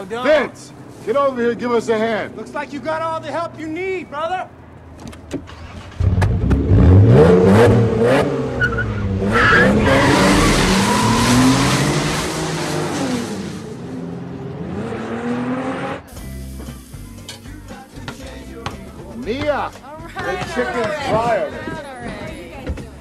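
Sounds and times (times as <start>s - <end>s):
car engine revving: 5.4s - 16.1s
tire squeal: 8.5s - 13.7s.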